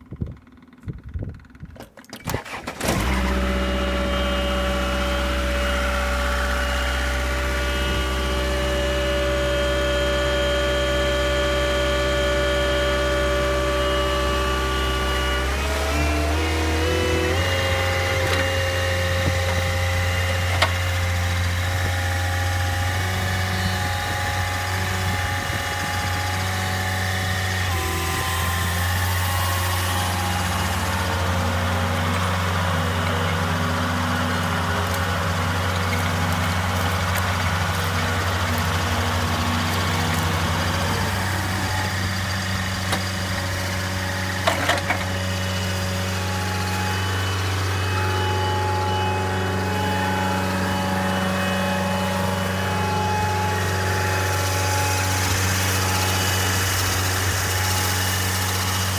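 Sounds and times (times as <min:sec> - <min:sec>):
mower engine hum: 0:00.0 - 0:58.9.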